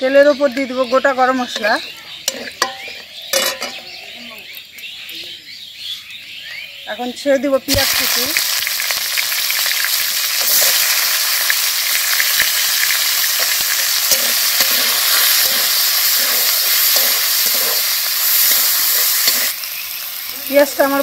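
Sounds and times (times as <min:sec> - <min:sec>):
onions sizzling in hot oil: 0:00.0 - 0:04.6, 0:06.9 - 0:21.0
metal spatula scraping and stirring: 0:01.5 - 0:03.9, 0:10.4 - 0:11.4, 0:12.2 - 0:19.6.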